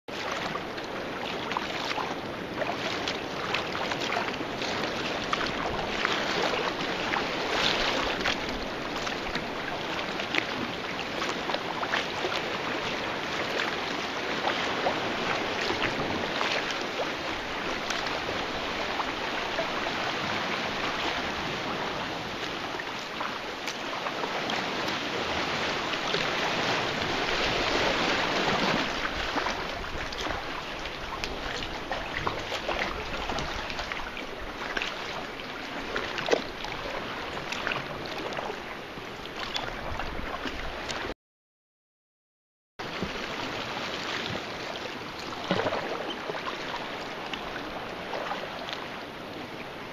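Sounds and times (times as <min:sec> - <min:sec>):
sea washing against rock: 0:00.1 - 0:38.6
water splashing around kayak: 0:00.1 - 0:41.2, 0:42.8 - 0:49.9.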